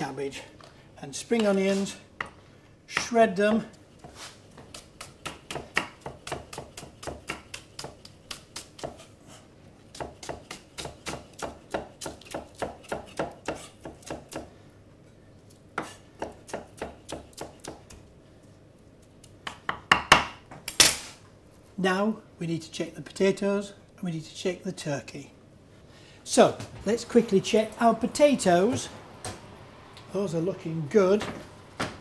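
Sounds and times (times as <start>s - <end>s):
knife chopping on wooden block: 4.7s - 9.0s, 9.9s - 14.5s, 15.8s - 18.0s.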